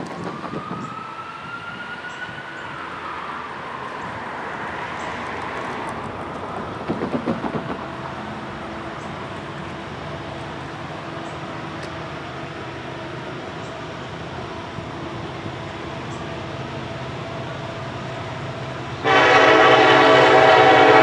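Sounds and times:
freight train rumble: 0:00.0 - 0:21.0.

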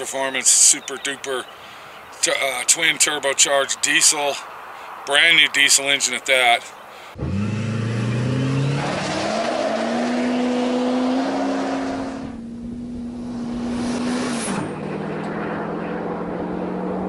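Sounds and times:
diesel pickup accelerating hard: 0:07.2 - 0:17.0.

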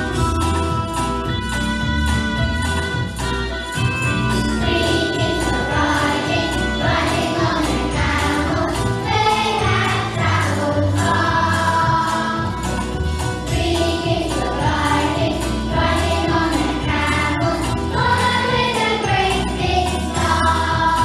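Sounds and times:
christmas backing music with sleigh bells: 0:00.0 - 0:21.0
choir singing: 0:04.6 - 0:21.0.

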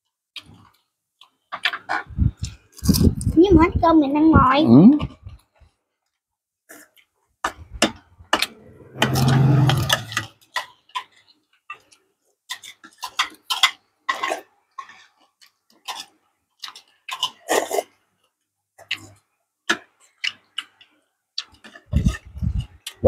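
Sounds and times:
chewing and lip smacks: 0:10.6 - 0:18.0, 0:18.8 - 0:23.0.

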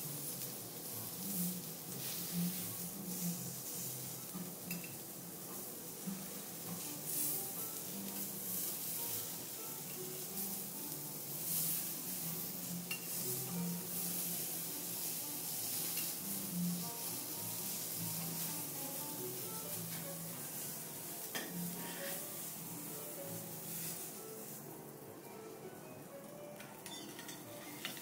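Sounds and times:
vegetables sizzling on griddle: 0:00.0 - 0:25.0
spatula and knife scraping metal: 0:21.3 - 0:22.4.

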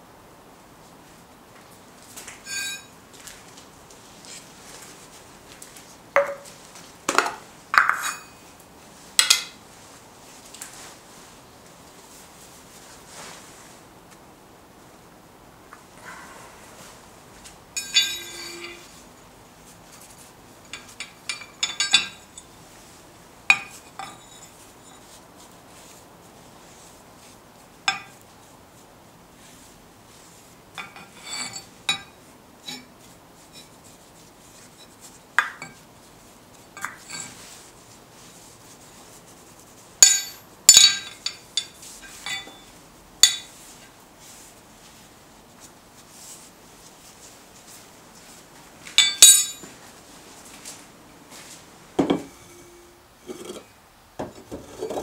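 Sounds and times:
metal and glass clinking on anvil: 0:02.4 - 0:02.9, 0:07.8 - 0:08.4, 0:17.8 - 0:19.0, 0:20.7 - 0:22.4, 0:27.9 - 0:28.1, 0:40.0 - 0:43.5, 0:49.0 - 0:49.7.

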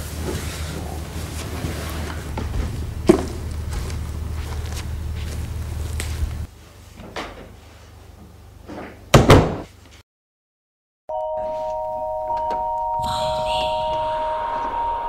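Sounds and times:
held musical chord: 0:02.2 - 0:06.5, 0:11.1 - 0:15.0
door slamming shut: 0:09.1 - 0:09.7.

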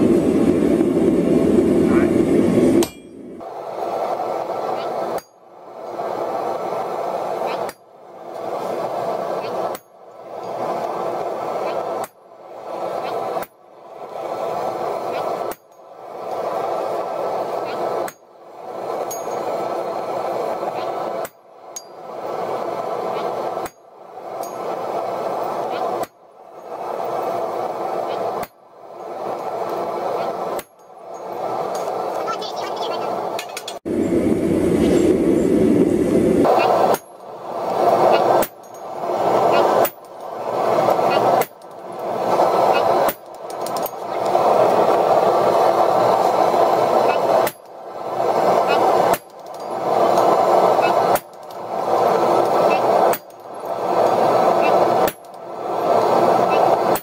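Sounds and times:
steady rushing noise: 0:00.0 - 0:57.0
hammer striking a punch: 0:02.8 - 0:03.2
light ringing clink: 0:02.8 - 0:03.2
hammer striking punch on hot steel: 0:02.8 - 0:03.3, 0:05.1 - 0:05.4, 0:07.6 - 0:07.9, 0:09.7 - 0:10.0, 0:18.0 - 0:18.3, 0:21.2 - 0:22.0, 0:23.6 - 0:24.6, 0:28.4 - 0:28.6, 0:30.6 - 0:30.9, 0:36.9 - 0:37.2, 0:38.4 - 0:38.8, 0:47.4 - 0:47.7, 0:49.0 - 0:49.7, 0:55.0 - 0:55.4.

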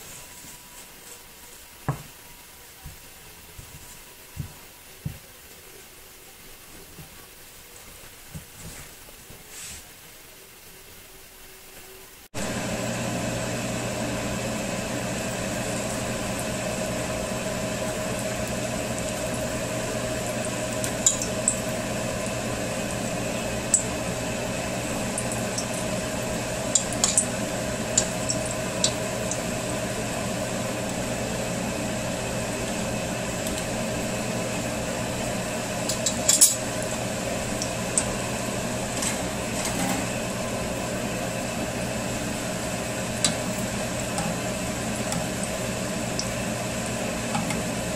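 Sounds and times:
constant hum: 0:00.0 - 0:47.9
deep-frying oil sizzle: 0:12.3 - 0:47.9.

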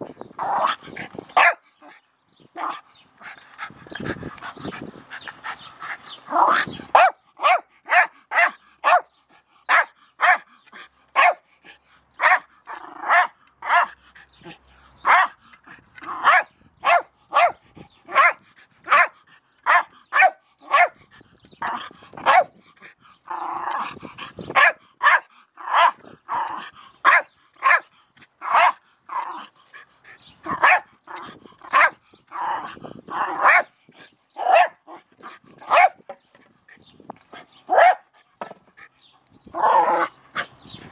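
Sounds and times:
dog barking: 0:01.4 - 0:01.6, 0:06.5 - 0:09.1, 0:09.7 - 0:10.5, 0:11.2 - 0:11.4, 0:12.2 - 0:12.4, 0:13.1 - 0:13.9, 0:15.0 - 0:15.4, 0:16.2 - 0:21.0, 0:22.2 - 0:22.5, 0:24.6 - 0:26.0, 0:27.0 - 0:27.9, 0:28.5 - 0:28.8, 0:30.5 - 0:30.9, 0:31.7 - 0:32.0, 0:33.3 - 0:33.7, 0:34.4 - 0:34.8, 0:35.6 - 0:36.0, 0:37.7 - 0:38.1.

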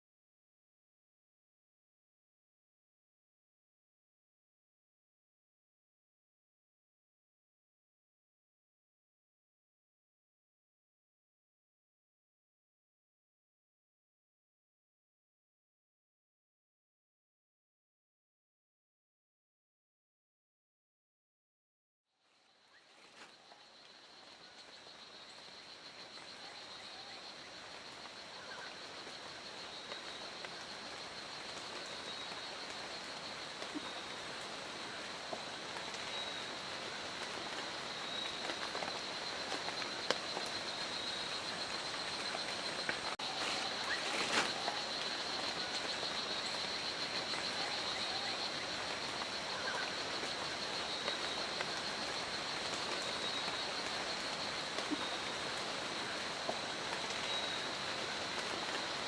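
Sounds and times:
rainforest background hiss: 0:22.2 - 0:59.0.

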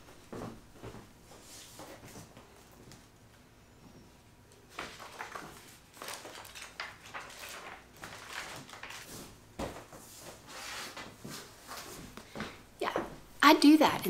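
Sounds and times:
sketchbook pages flipping: 0:04.7 - 0:09.4.

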